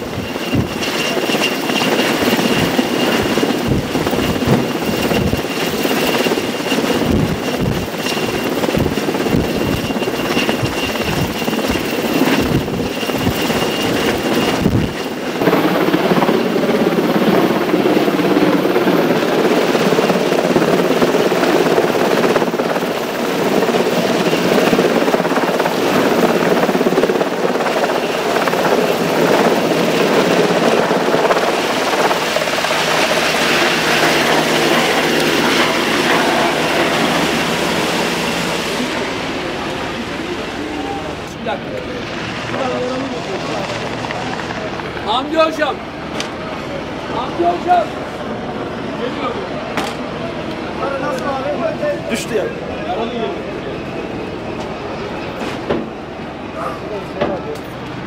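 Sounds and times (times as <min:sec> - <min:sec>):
wind buffeting microphone: 0:00.0 - 0:41.3
helicopter hovering: 0:00.0 - 0:58.0.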